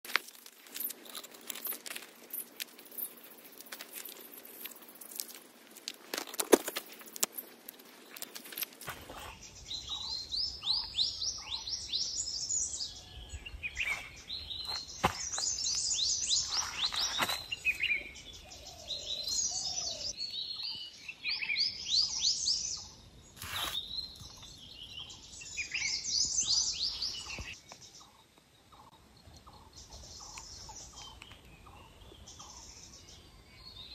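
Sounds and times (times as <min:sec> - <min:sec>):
bush branches cracking: 0:00.0 - 0:09.4
leaves crackling and rustling: 0:00.0 - 0:10.0, 0:13.8 - 0:18.2, 0:23.4 - 0:23.9
birds chirping: 0:00.8 - 0:33.9.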